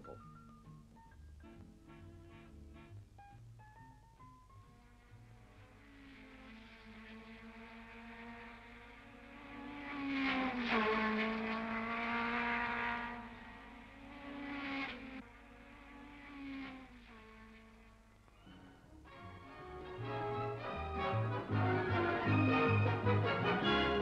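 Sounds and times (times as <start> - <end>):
racing car engines passing: 4.7 - 24.0.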